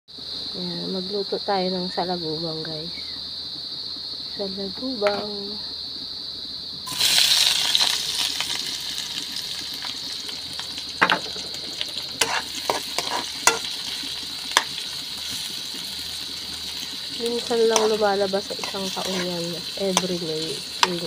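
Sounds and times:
onions sizzling in hot oil: 0:00.1 - 0:21.0
spatula scraping wok: 0:11.0 - 0:21.0.

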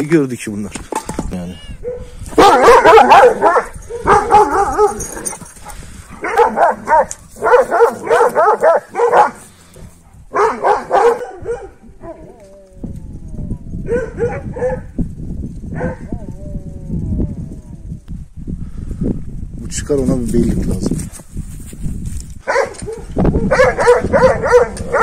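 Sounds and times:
low rustling: 0:00.6 - 0:16.5
dogs barking deeply: 0:01.8 - 0:15.0, 0:15.7 - 0:17.4, 0:22.4 - 0:25.0.

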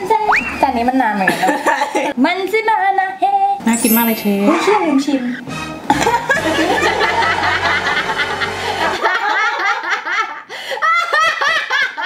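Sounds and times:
woman laughing hard: 0:04.5 - 0:12.0.

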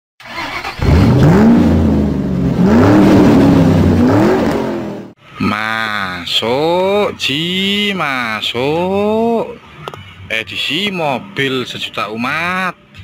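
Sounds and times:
car engine revving: 0:00.2 - 0:05.2.

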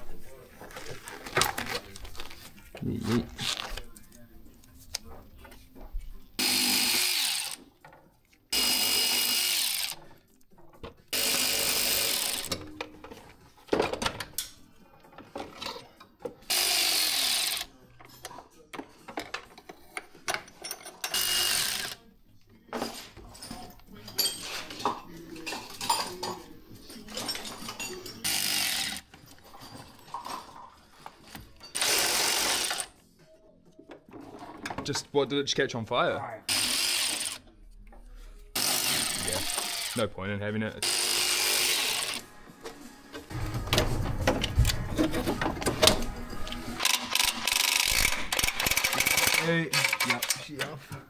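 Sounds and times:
cordless power tool bursts: 0:06.4 - 0:07.5, 0:36.5 - 0:37.4, 0:40.8 - 0:42.2
hand tools clinking and rattling: 0:17.7 - 0:22.0, 0:22.7 - 0:32.9, 0:43.2 - 0:50.8.

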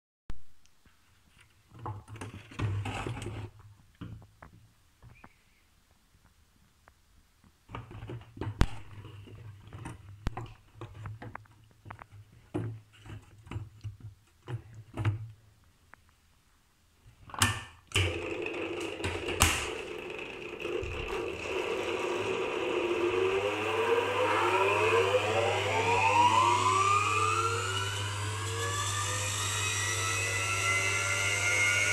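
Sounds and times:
honey extractor motor whine: 0:17.9 - 0:31.9.

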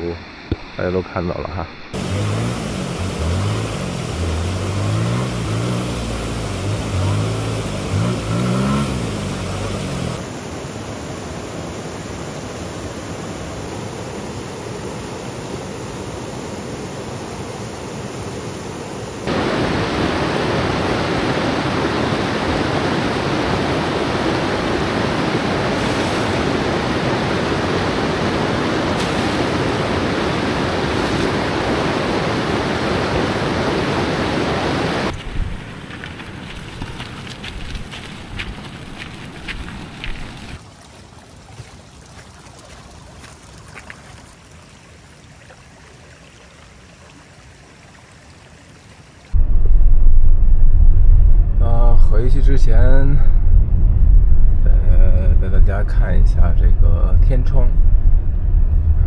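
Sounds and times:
river water rushing: 0:02.0 - 0:49.4
low pitched rising and falling sound: 0:49.4 - 0:59.0.

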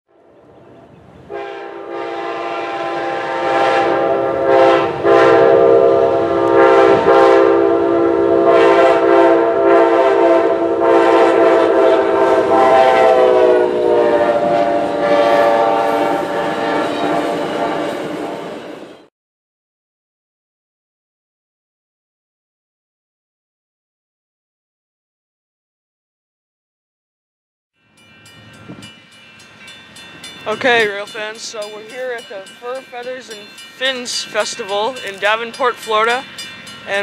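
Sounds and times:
train rumble: 0:00.1 - 0:08.3, 0:10.8 - 0:19.1, 0:27.9 - 0:37.0
locomotive horn chord: 0:00.1 - 0:18.6, 0:30.4 - 0:36.3.

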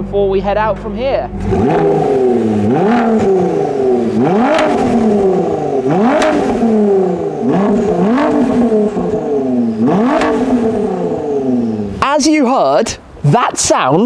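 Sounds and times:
car engine revving: 0:00.0 - 0:13.7
sharp exhaust snap: 0:00.7 - 0:11.6.

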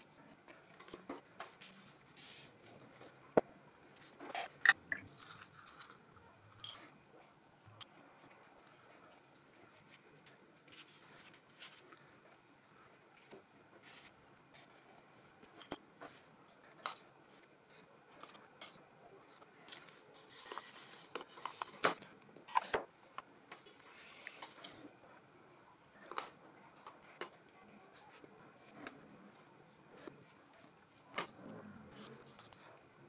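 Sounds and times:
paintbrush swishing on paper: 0:01.6 - 0:02.6.

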